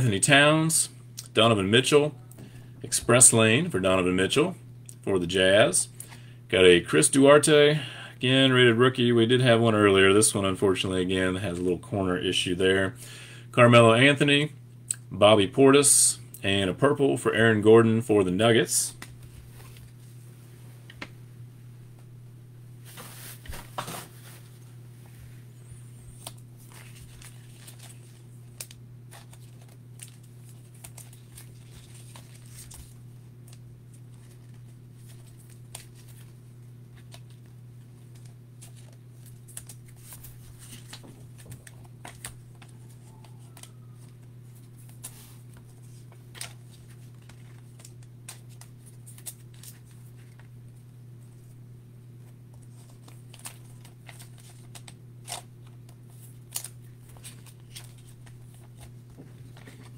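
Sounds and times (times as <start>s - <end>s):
steady low hum: 0.0s - 59.9s
plastic sleeves rustling: 18.9s - 21.2s, 22.8s - 59.9s
trading cards clicking and rustling: 26.1s - 50.5s, 52.5s - 59.9s.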